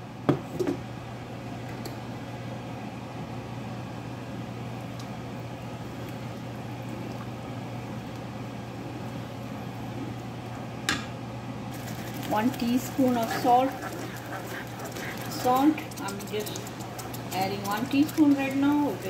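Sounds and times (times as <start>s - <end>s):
steady low hum: 0.0s - 19.0s
gravy cooking in a pan: 11.7s - 19.0s
wooden spatula stirring: 11.8s - 19.0s.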